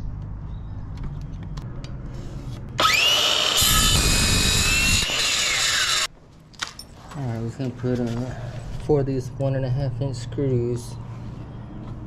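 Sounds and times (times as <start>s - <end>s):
circular saw cutting wood: 2.8s - 6.1s.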